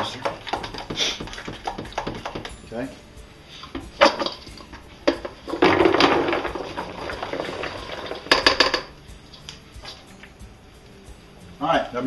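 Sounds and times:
metal bowl knocking on countertop: 0:00.1 - 0:02.6
clatter inside metal bowl: 0:04.0 - 0:08.9.

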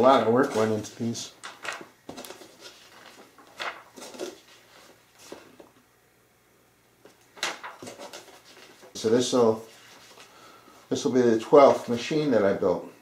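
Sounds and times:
paper pages turning: 0:00.2 - 0:05.6, 0:07.4 - 0:10.4.

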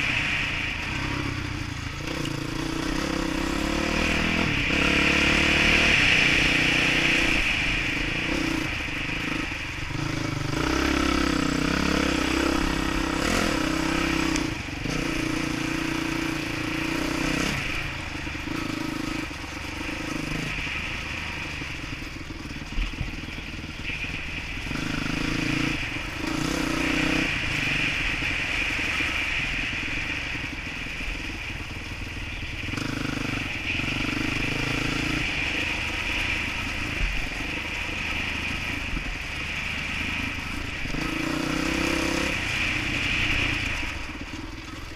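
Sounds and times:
dirt bike engine revving: 0:00.0 - 0:31.7, 0:32.4 - 0:44.9
wind: 0:00.0 - 0:44.9.

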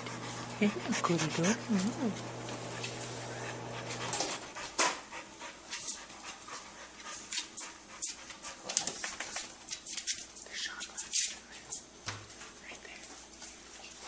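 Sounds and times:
dog panting: 0:00.0 - 0:10.1.

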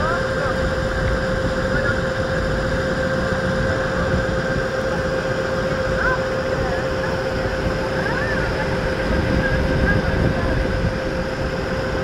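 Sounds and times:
constant hum-like tone: 0:00.0 - 0:12.0
ship engine drone: 0:00.0 - 0:12.0
water and air noise: 0:00.0 - 0:12.0.

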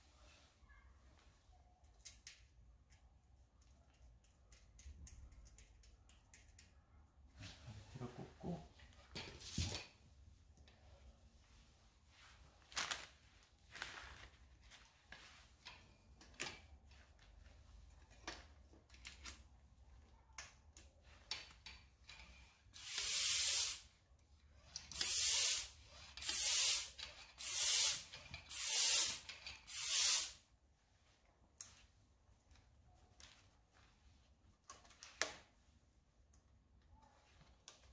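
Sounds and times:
bicycle pump hissing strokes: 0:22.8 - 0:23.9, 0:24.8 - 0:30.4.

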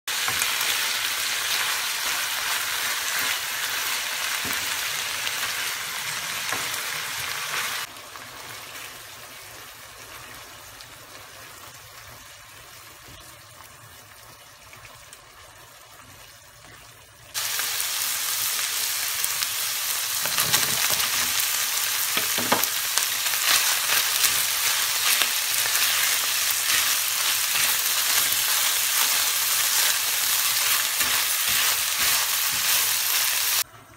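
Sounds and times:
meat sizzling in a frying pan: 0:00.1 - 0:13.1, 0:17.3 - 0:33.7
spatula stirring in a pan: 0:22.2 - 0:33.6.

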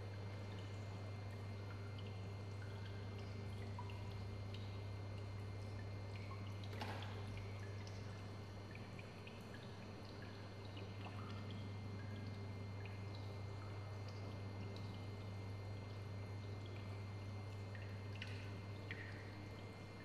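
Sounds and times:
steady low hum: 0:00.0 - 0:20.0
water dripping: 0:00.1 - 0:20.0.

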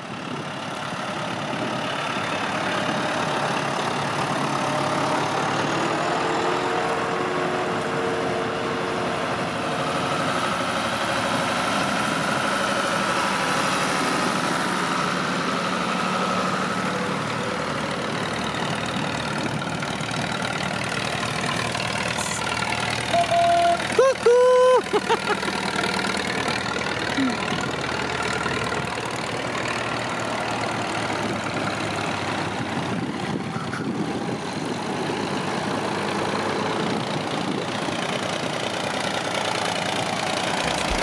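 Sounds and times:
tractor engines driving past: 0:00.0 - 0:41.0.

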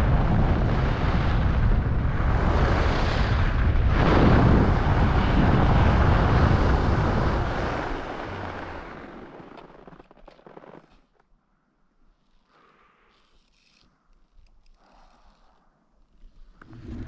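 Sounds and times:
wind buffeting microphone: 0:00.0 - 0:09.3
skis sliding over snow: 0:04.0 - 0:11.2.

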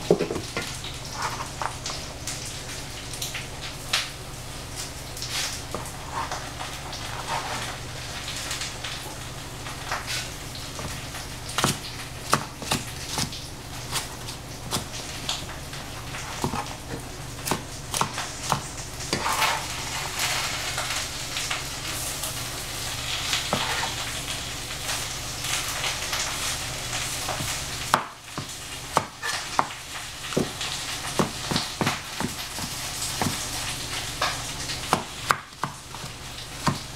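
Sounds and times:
utensil knocking in pan: 0:00.0 - 0:00.7
oil sizzling in frying pan: 0:00.0 - 0:36.9.

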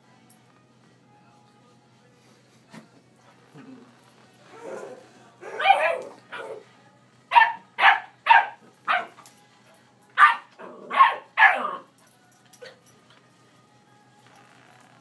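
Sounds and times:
dog barking: 0:05.5 - 0:06.6, 0:07.3 - 0:09.2, 0:10.2 - 0:11.8.

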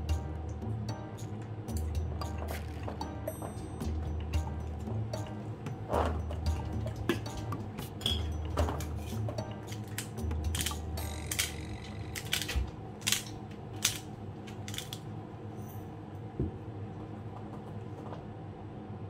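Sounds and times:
quiet background music: 0:00.0 - 0:19.0.

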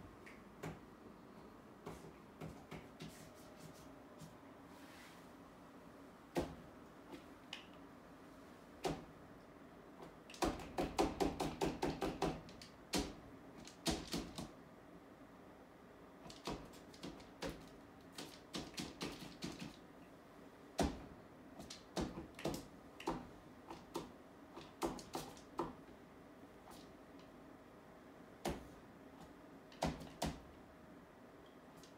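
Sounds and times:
painting tool tapping wall panel: 0:10.3 - 0:14.5, 0:20.8 - 0:25.8.

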